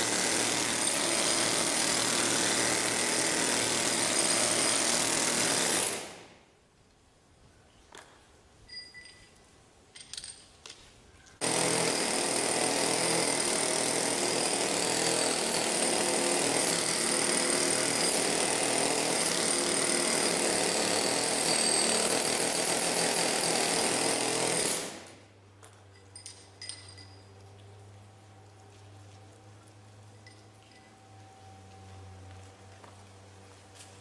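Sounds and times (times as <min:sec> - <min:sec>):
pneumatic rock drill: 0:00.0 - 0:06.3, 0:11.4 - 0:25.2
light metallic clinks: 0:08.6 - 0:10.7, 0:25.6 - 0:27.8, 0:30.2 - 0:31.2.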